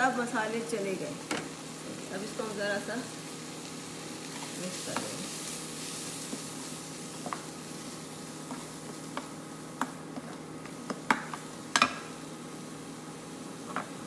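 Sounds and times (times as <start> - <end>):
faint frying sizzle: 0.0 - 14.0
spoon tapping a frying pan: 7.2 - 7.5, 8.4 - 12.1.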